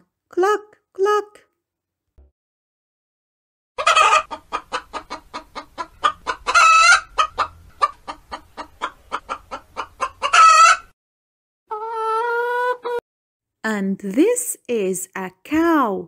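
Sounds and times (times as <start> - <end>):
hen clucking: 3.8 - 10.9, 11.7 - 13.0
hen squawking: 3.8 - 10.9, 11.7 - 13.0.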